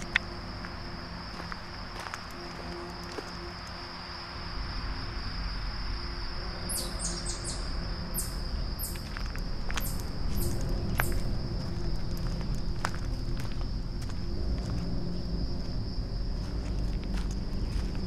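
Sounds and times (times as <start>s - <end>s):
footsteps on dry leaves: 0.0s - 3.7s, 8.9s - 18.0s
insects trilling: 0.0s - 18.0s
low rumble: 7.6s - 18.0s.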